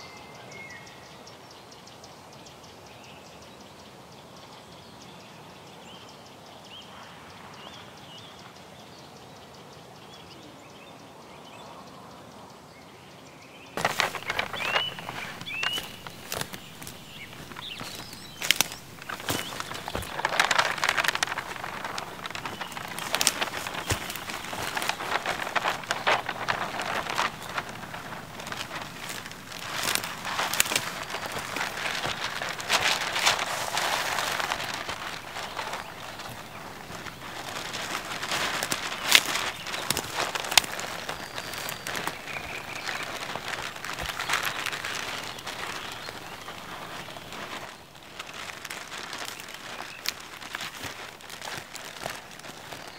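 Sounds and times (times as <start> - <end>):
paper rustling and crackling: 13.8 - 52.9.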